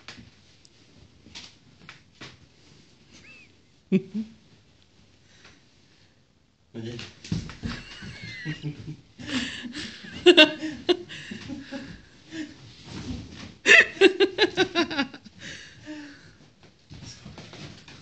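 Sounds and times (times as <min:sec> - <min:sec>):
person laughing: 0:03.2 - 0:04.4, 0:07.7 - 0:12.5, 0:13.7 - 0:15.3.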